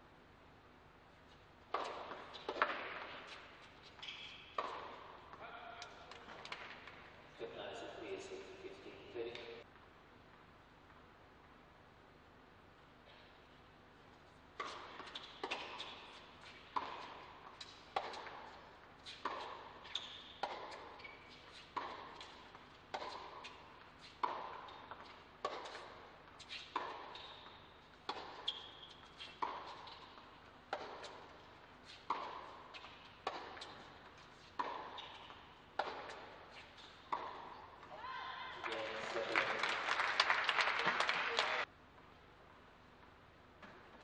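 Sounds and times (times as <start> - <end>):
tennis ball bouncing: 1.6 - 7.1, 14.5 - 38.0
tennis ball off racket strings: 1.7 - 7.0, 14.6 - 37.9.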